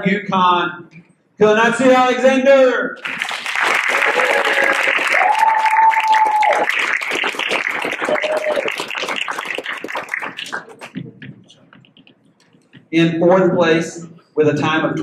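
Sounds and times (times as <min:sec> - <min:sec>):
audience applauding: 0:03.0 - 0:11.6
drawn-out cheers: 0:03.9 - 0:06.8, 0:08.0 - 0:08.8.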